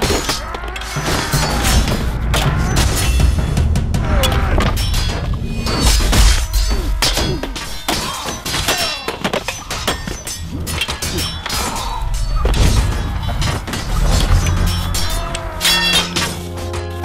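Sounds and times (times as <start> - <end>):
weapons clashing: 0.0 - 16.9
heavy thuds: 1.5 - 6.5.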